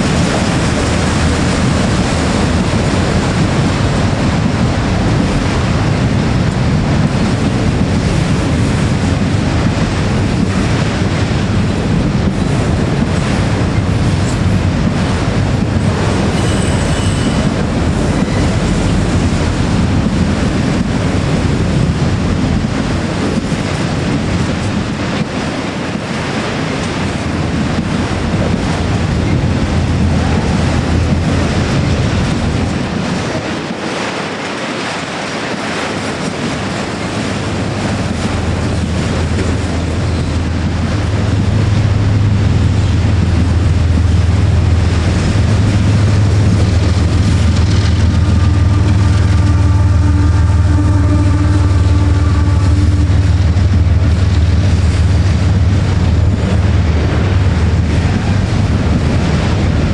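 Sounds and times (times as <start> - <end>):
train rumble: 0.0 - 59.9
wheel squeal: 16.3 - 17.5.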